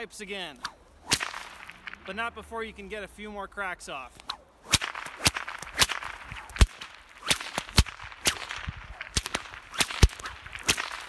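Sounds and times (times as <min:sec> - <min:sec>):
whip cracking: 0:00.5 - 0:02.2, 0:04.1 - 0:11.0.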